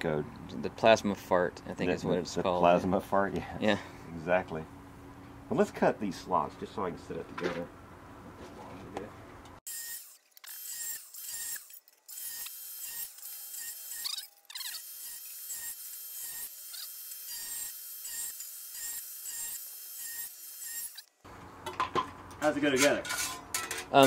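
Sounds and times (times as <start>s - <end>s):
angle grinder cutting sheet steel: 9.7s - 21.1s.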